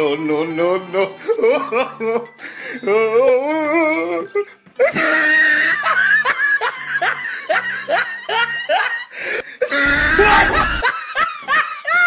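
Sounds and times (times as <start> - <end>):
faint background music: 0.0 - 12.0
person laughing: 4.8 - 12.0.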